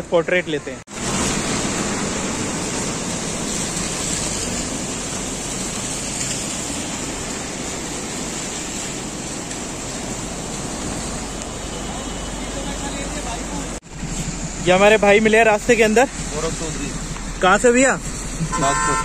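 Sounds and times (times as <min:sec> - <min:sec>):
rushing river water: 0:00.0 - 0:19.0.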